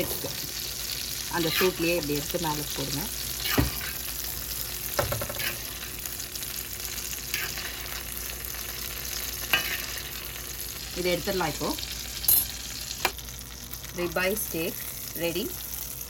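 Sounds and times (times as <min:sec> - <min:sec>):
butter sizzling in skillet: 0:00.0 - 0:16.0
metal spoon clinking on pan: 0:12.3 - 0:12.6.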